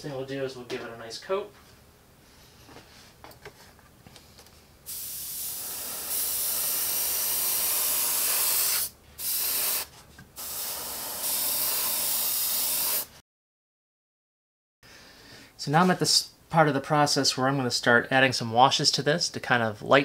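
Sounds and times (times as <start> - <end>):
airbrush spraying paint: 4.9 - 13.2.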